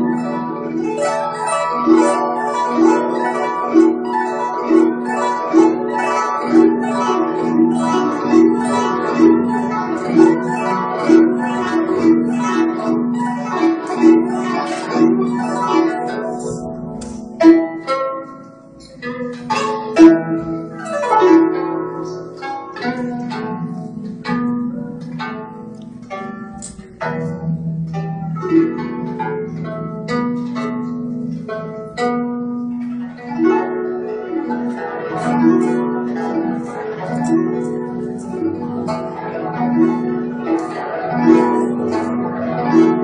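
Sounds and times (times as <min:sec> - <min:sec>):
plucked zither playing: 0:00.0 - 0:43.0.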